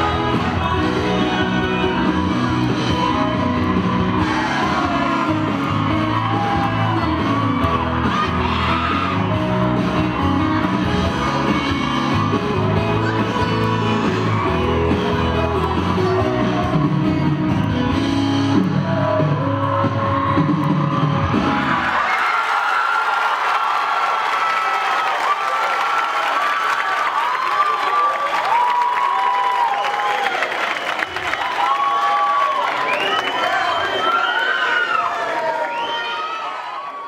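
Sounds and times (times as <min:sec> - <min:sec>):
dance music with sung vocal: 0:00.0 - 0:17.9.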